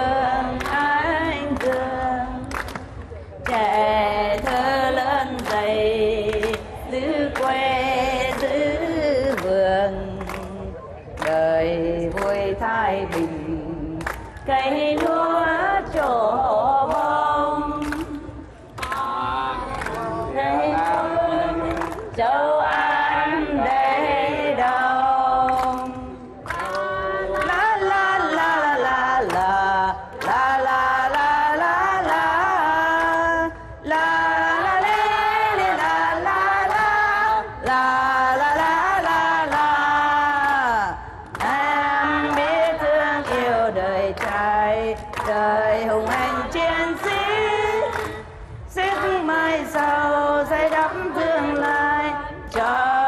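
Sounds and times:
group singing: 0.0s - 53.0s
woman singing into a microphone: 0.0s - 53.0s.

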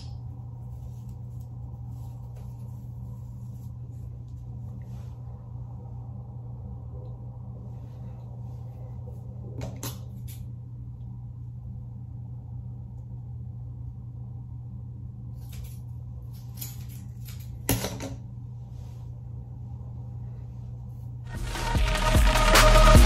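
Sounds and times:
low steady hum: 0.0s - 23.0s
hair rustling: 0.4s - 5.3s.

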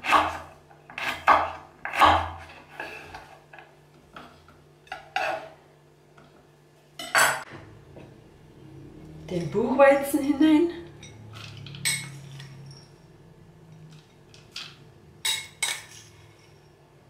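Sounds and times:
knife chopping on wooden board: 0.0s - 2.5s.

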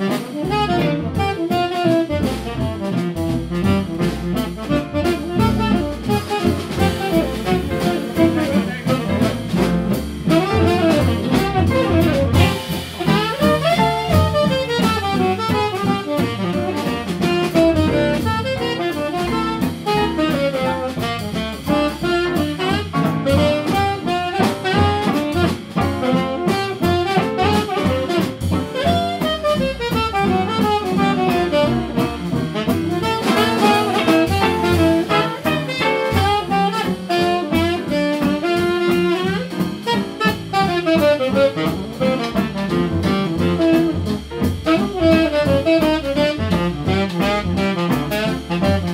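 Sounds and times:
saxophone melody: 0.0s - 48.9s
swing jazz band playing: 0.0s - 48.9s.

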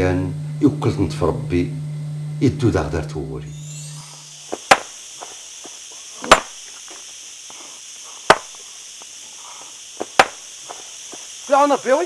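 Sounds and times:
digging tool striking stony ground: 4.5s - 5.4s, 6.2s - 7.0s, 8.3s - 8.6s, 10.0s - 10.8s
stones and soil knocking: 4.5s - 7.0s, 8.3s - 8.6s, 10.0s - 11.3s.

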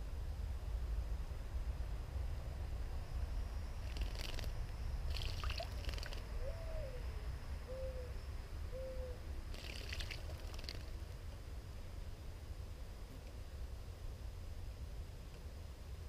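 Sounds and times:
bird splashing in water: 3.8s - 6.3s, 9.5s - 10.9s
low hooting bird call: 5.5s - 9.9s.

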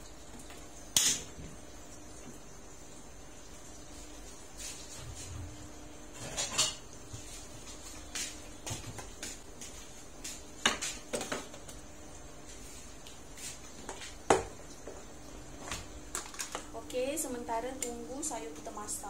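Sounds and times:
kitchen items knocking and clinking: 10.6s - 11.6s.

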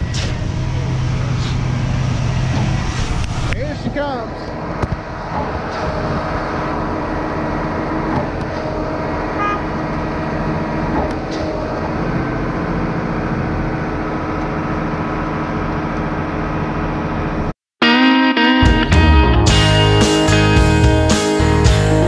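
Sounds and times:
pump truck engine drone: 0.0s - 17.5s.

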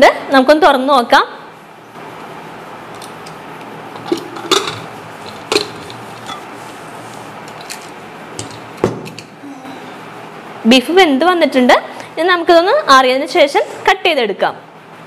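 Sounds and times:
metal lid clinks and knocks: 4.0s - 4.9s.

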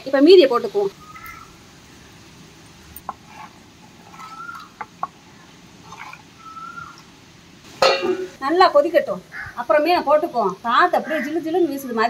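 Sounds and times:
short bird calls: 0.9s - 1.6s, 4.1s - 4.8s, 6.4s - 7.0s
metal ladle clinking on clay pot: 7.8s - 8.4s.

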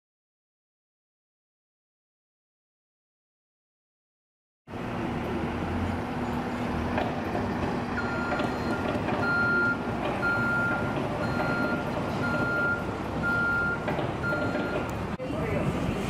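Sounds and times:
heavy machinery engines running: 4.7s - 16.0s
reversing alarm beeping: 8.0s - 15.0s.

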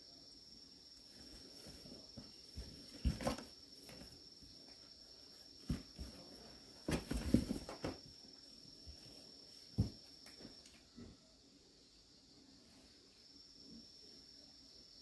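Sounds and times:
soft footsteps and scuffs: 5.4s - 8.0s, 8.8s - 10.6s.

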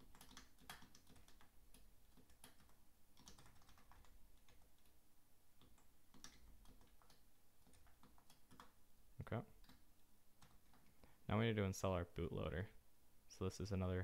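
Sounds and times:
faint keyboard keystrokes: 0.0s - 5.0s, 5.6s - 8.8s.

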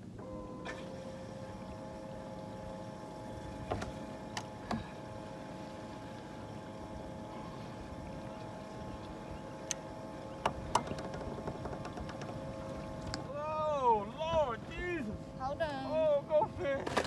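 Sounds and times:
electric motor whine: 0.2s - 13.3s.

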